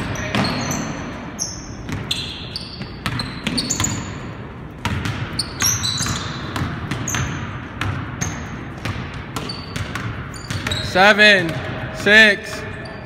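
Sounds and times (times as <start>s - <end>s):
sneakers squeaking: 0.0s - 13.0s
basketball bouncing on wood floor: 2.8s - 4.2s, 4.8s - 12.8s.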